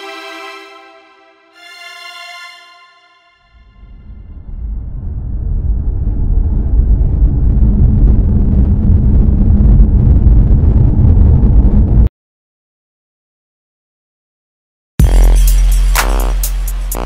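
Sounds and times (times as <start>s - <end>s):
deep rumble: 3.5s - 12.1s.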